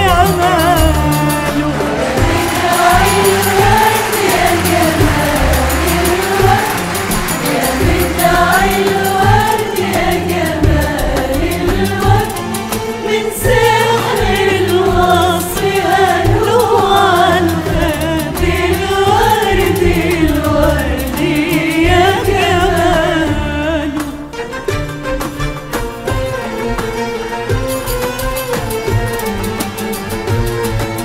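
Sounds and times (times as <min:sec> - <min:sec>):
frame drums beat: 0:00.0 - 0:24.0
string orchestra: 0:00.0 - 0:31.0
choir singing in unison: 0:01.3 - 0:23.9.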